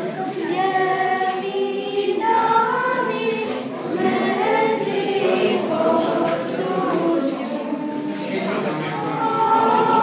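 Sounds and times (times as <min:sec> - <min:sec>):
choir singing unaccompanied: 0:00.0 - 0:10.0.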